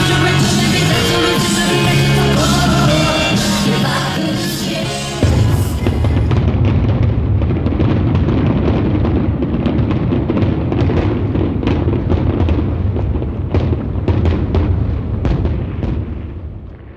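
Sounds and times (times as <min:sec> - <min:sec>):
fireworks bangs and crackles: 0:00.0 - 0:16.9
low booming rumble: 0:05.2 - 0:16.9.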